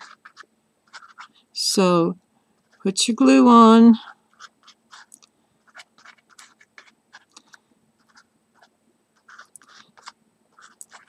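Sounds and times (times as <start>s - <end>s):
glue bottle scratching paper: 0.0s - 1.4s, 4.0s - 11.0s.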